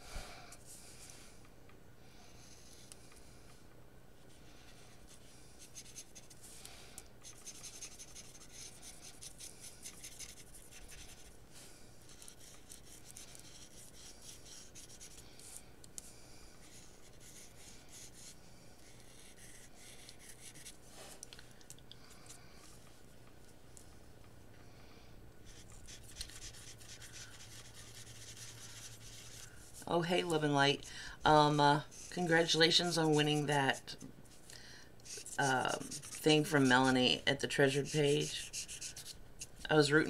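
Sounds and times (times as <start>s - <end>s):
low steady hum: 0.0s - 40.0s
marker scratching on paper: 4.6s - 6.4s, 7.2s - 11.4s, 12.1s - 15.6s, 16.6s - 20.8s, 25.5s - 34.0s, 35.0s - 39.7s.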